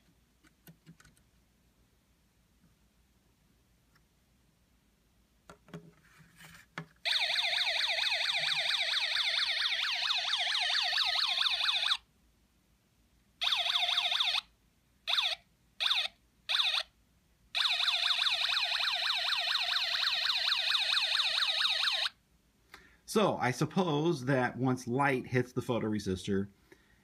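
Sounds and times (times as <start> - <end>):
electronic siren from small speaker: 7.1 - 12.0, 13.4 - 14.5, 15.1 - 16.9, 17.6 - 22.2.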